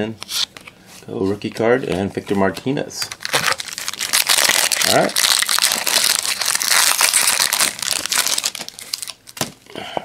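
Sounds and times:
wrapper crinkling and tearing: 3.0 - 9.6.

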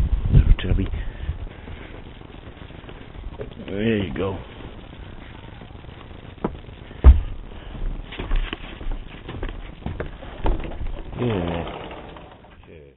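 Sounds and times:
footsteps on wooden deck: 0.8 - 5.7, 6.4 - 11.1
rustling: 0.8 - 12.8
heavy thump: 6.4 - 9.0.

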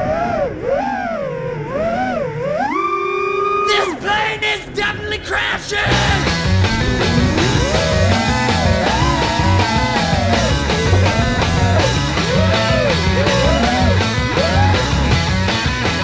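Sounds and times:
rock music with guitar: 5.8 - 16.0.

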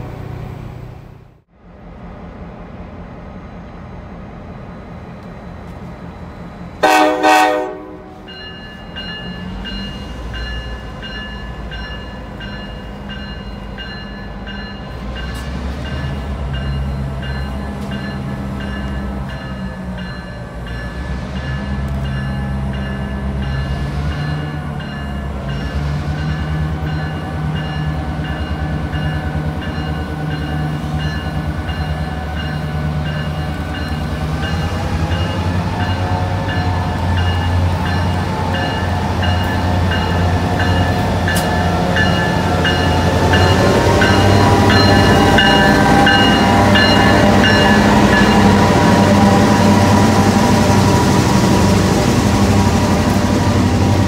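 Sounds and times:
diesel locomotive engine rumble: 0.0 - 54.0
train air horn blast: 6.8 - 8.3.

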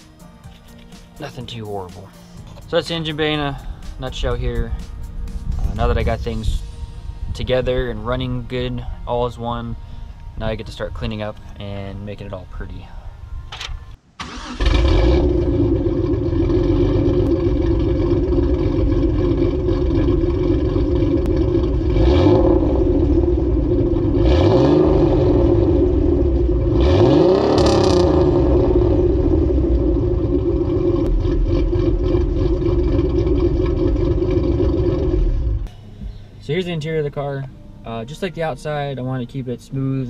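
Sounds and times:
car engine exhaust idling and revving: 14.6 - 37.1.

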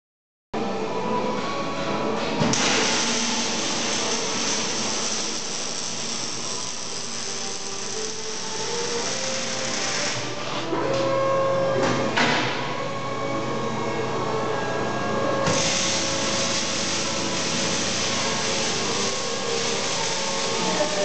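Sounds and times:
steady hissing machine noise: 2.5 - 10.6, 13.4 - 21.0.

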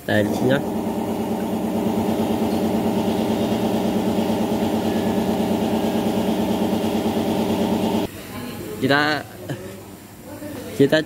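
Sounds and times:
engine idling: 0.0 - 8.1.

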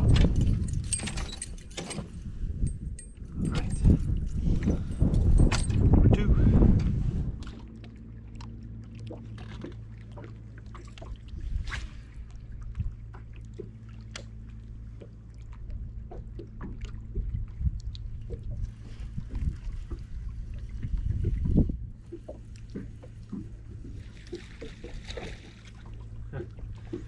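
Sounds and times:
clicks and knocks on boat deck: 0.0 - 6.1, 13.1 - 20.2, 20.8 - 27.0.

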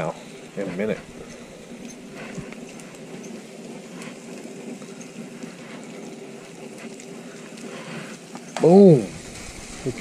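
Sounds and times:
patties sizzling on a griddle: 8.5 - 10.0.

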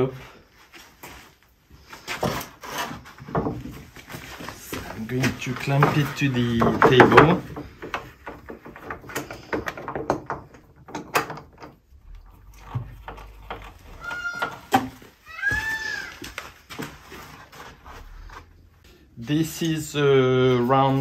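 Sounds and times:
wooden plank knocks and clicks: 5.6 - 11.8
high squeaks: 13.7 - 16.2.

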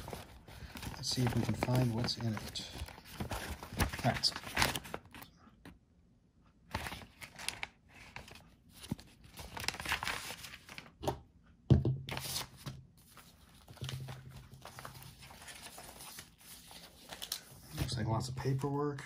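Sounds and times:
paper rustling and tearing: 0.0 - 5.2, 6.7 - 10.9, 12.1 - 17.9.

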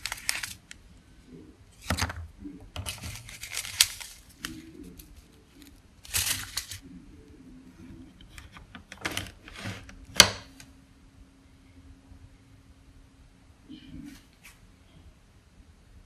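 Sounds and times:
paper packets rustling: 0.0 - 0.8, 1.7 - 6.8.

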